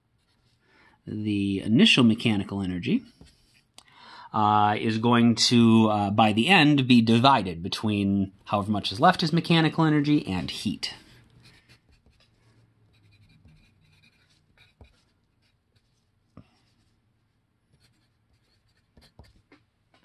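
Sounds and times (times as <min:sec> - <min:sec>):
pencil scratching on paper: 0:11.0 - 0:16.0, 0:17.7 - 0:19.5.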